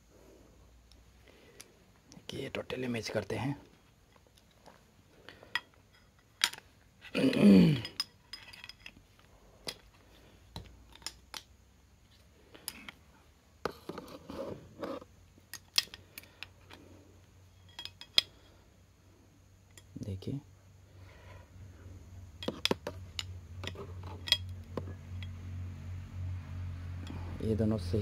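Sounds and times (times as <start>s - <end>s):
metal parts clicking and tapping: 4.1s - 6.7s, 7.8s - 10.0s, 10.6s - 11.5s, 15.5s - 16.8s, 17.6s - 18.4s, 22.4s - 25.3s.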